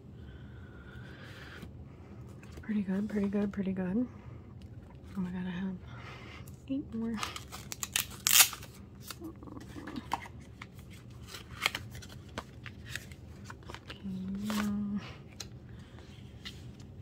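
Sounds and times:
cards clicking and rustling: 7.0 - 16.9
person humming: 9.2 - 10.1.

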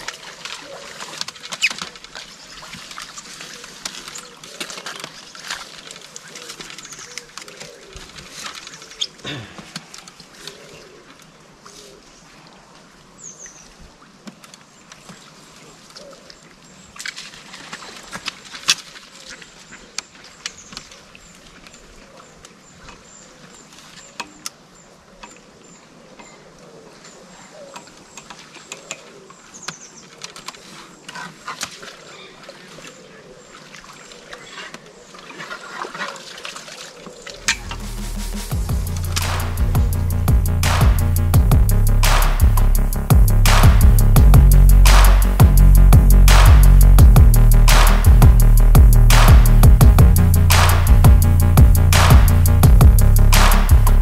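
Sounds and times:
music: 37.5 - 54.0.

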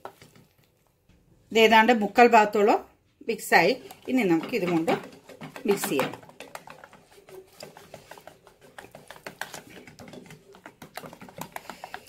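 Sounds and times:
whisk beating batter in plastic bowl: 3.3 - 12.0.

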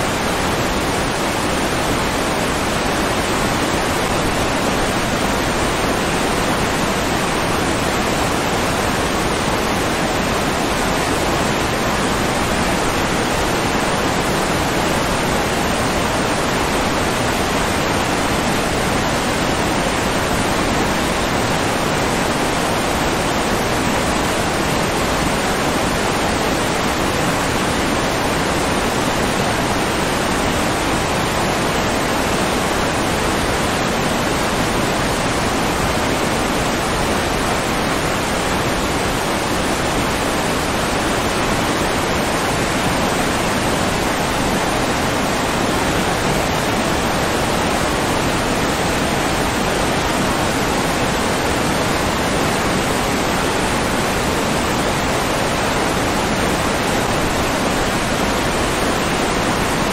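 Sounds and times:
rushing water roar: 0.0 - 59.9.

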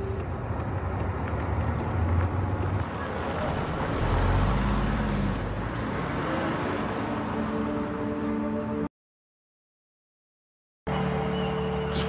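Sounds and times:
car engine and road noise: 0.0 - 8.9.

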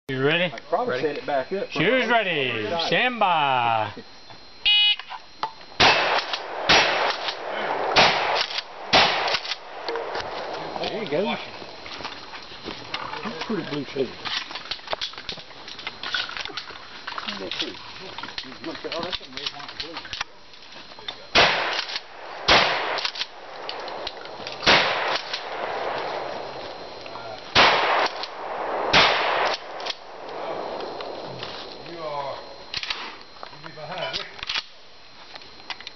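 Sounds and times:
shotgun shots: 5.8 - 10.8, 21.3 - 26.9, 27.5 - 31.2
gun action clicks and clanks: 8.4 - 10.3, 21.1 - 22.1, 22.9 - 26.1, 32.7 - 33.1, 34.1 - 34.7.

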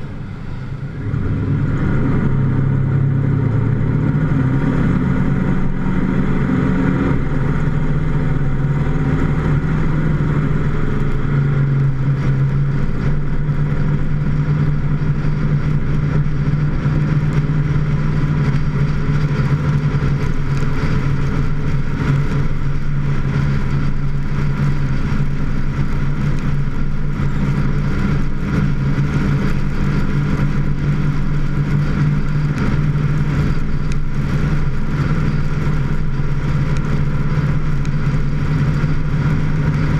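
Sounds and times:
tyres on wet pavement: 0.0 - 39.9
vehicle engine humming: 0.0 - 39.9.

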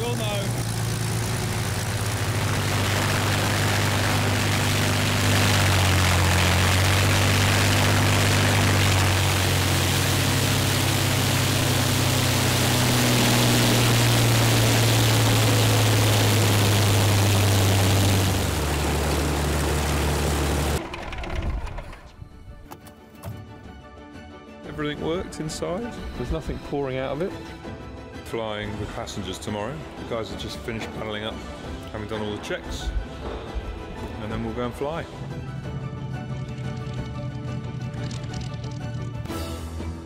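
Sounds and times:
aircraft piston engine running: 0.0 - 22.3, 30.4 - 39.3.

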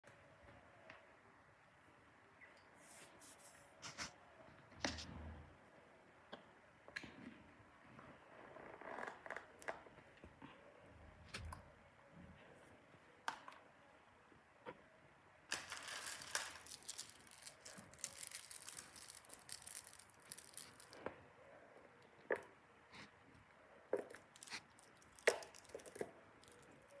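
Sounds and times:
jewelry crinkling and rustling: 15.5 - 22.3, 23.9 - 27.0.

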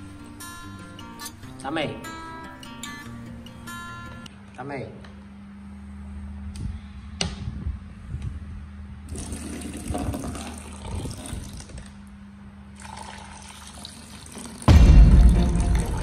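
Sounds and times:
water pouring into basin: 9.1 - 11.9, 12.8 - 16.0.

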